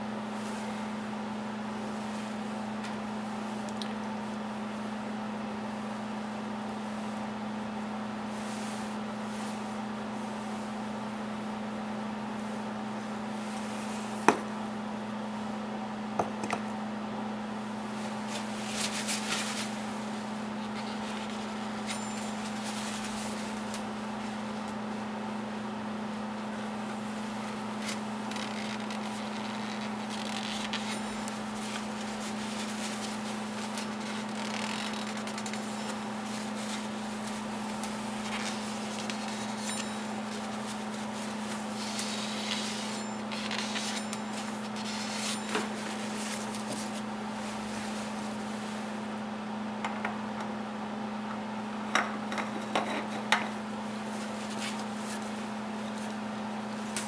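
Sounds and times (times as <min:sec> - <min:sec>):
steady background hum: 0:00.0 - 0:57.0
cloth rag rustling and scraping: 0:17.9 - 0:24.9, 0:26.9 - 0:49.0, 0:53.9 - 0:56.2.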